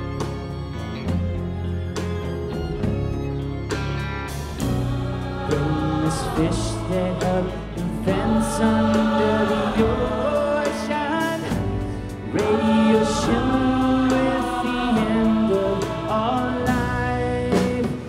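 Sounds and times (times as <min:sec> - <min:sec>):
drum kit: 0:00.0 - 0:18.0
electric guitars: 0:00.0 - 0:18.0
keyboard: 0:00.0 - 0:18.0
strings: 0:00.0 - 0:18.0
choir singing sustained chords: 0:04.4 - 0:18.0.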